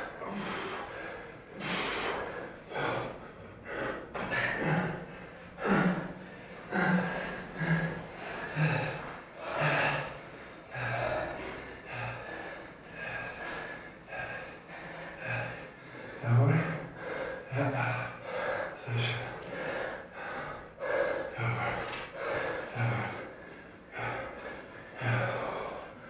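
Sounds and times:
men breathing hard: 0:00.0 - 0:26.0
men grunting: 0:04.1 - 0:10.2.

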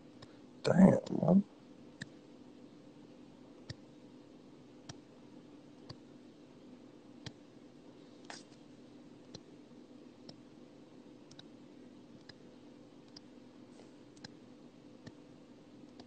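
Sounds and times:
low steady hum: 0:00.0 - 0:16.0
faint sharp clicks: 0:11.3 - 0:11.5, 0:14.2 - 0:14.4.

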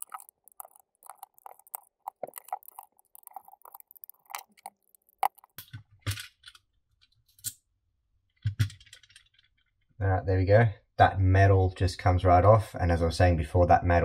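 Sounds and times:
metal and plastic clicks and crackles: 0:00.0 - 0:07.6, 0:08.4 - 0:09.8.

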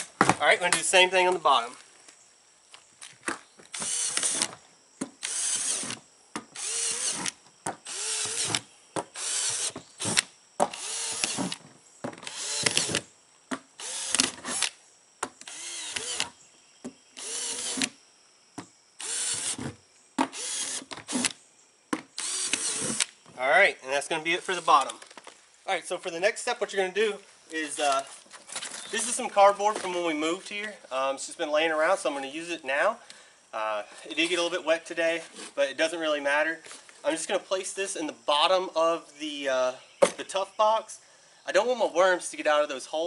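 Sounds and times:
cordless drill whirring: 0:03.7 - 0:04.6, 0:05.2 - 0:06.0, 0:06.6 - 0:11.6, 0:12.2 - 0:13.0, 0:13.8 - 0:14.8, 0:15.4 - 0:16.3, 0:17.2 - 0:17.9, 0:19.0 - 0:19.6, 0:20.3 - 0:21.3, 0:22.2 - 0:23.1.

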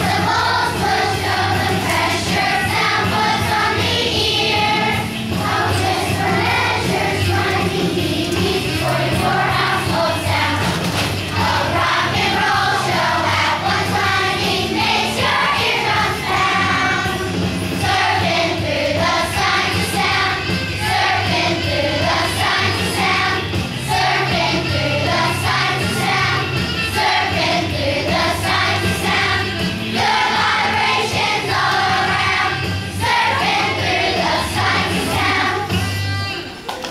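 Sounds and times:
children's choir singing: 0:00.0 - 0:36.1
instrumental accompaniment with bass: 0:00.0 - 0:36.7.

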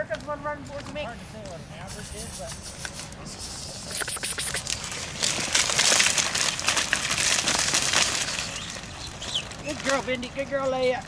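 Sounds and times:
dry plant stalks crackling: 0:03.9 - 0:11.0.

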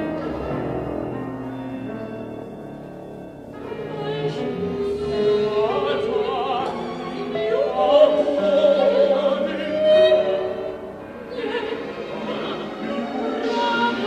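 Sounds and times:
orchestral music: 0:00.0 - 0:14.0
operatic voice singing: 0:03.6 - 0:14.0.

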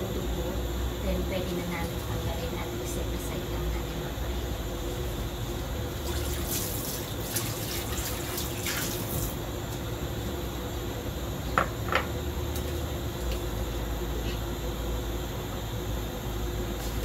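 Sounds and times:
low kitchen hum: 0:00.0 - 0:17.0
water running from kitchen tap: 0:05.9 - 0:09.4.

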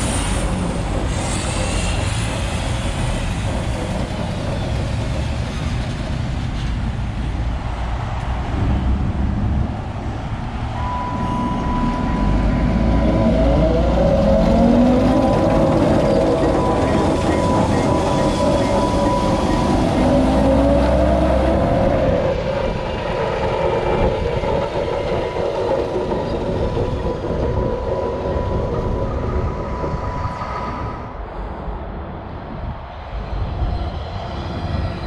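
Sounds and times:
diesel locomotive engine rumble: 0:00.0 - 0:35.0
high whine: 0:08.1 - 0:22.9
wavering tones: 0:10.8 - 0:22.0.

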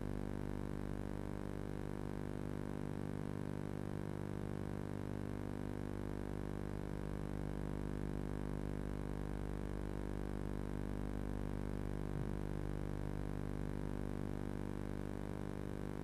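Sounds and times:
electrical hum: 0:11.8 - 0:14.5.

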